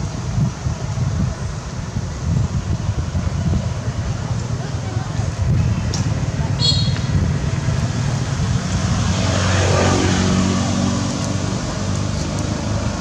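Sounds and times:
vehicle engine rumbling past: 0:04.8 - 0:13.0.

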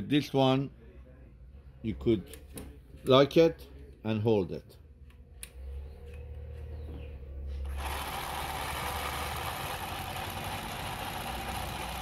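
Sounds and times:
sewing machine running: 0:07.6 - 0:12.0.

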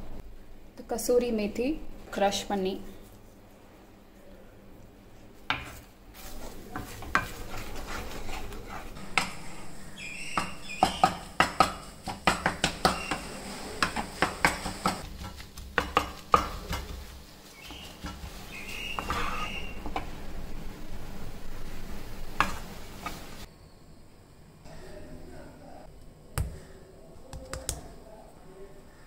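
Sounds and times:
wooden spatula scraping pan: 0:05.5 - 0:20.1, 0:21.7 - 0:23.5
spatula knocking against pan: 0:10.4 - 0:13.2, 0:13.8 - 0:17.0.

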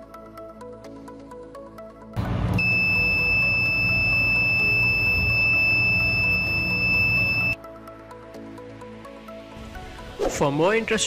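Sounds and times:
high-pitched buzzer tone: 0:02.2 - 0:07.6.

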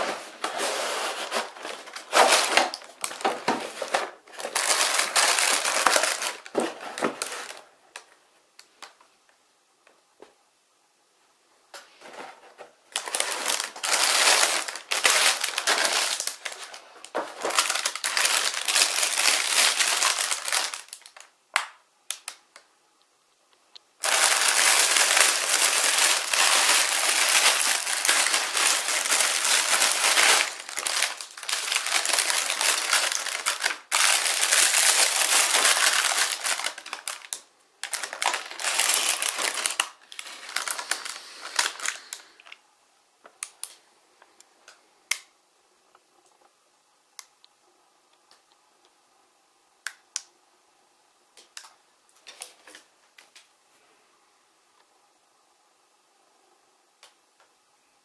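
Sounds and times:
plastic bags crinkling: 0:00.0 - 0:08.1, 0:12.8 - 0:21.3, 0:24.0 - 0:42.6.

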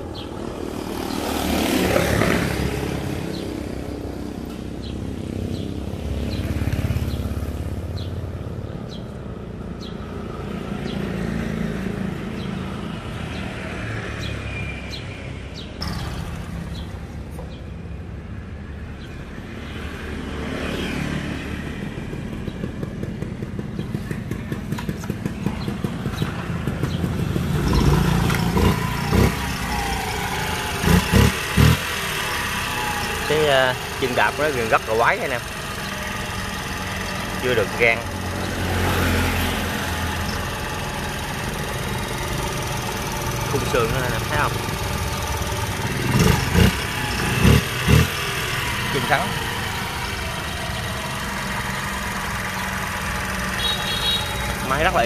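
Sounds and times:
motorcycles passing: 0:00.0 - 0:55.0
pulsing engine: 0:15.8 - 0:55.0.

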